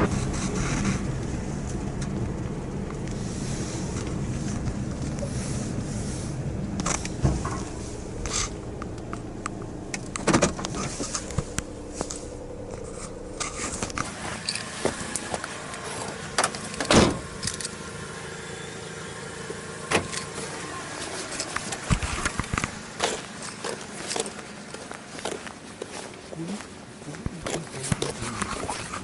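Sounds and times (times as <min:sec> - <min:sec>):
car engine idling: 0:00.0 - 0:29.0
car door shutting: 0:06.7 - 0:17.8, 0:19.4 - 0:23.2.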